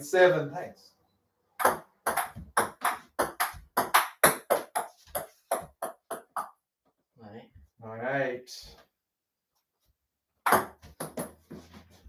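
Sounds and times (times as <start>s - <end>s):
table tennis ball bouncing: 1.6s - 6.6s, 10.4s - 11.4s.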